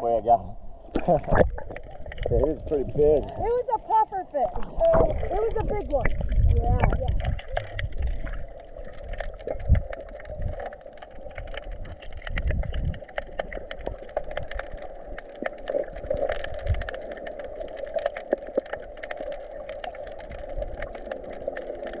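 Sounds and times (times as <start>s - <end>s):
muffled underwater wash: 0.0s - 22.0s
sharp clicks and crackles: 4.5s - 22.0s.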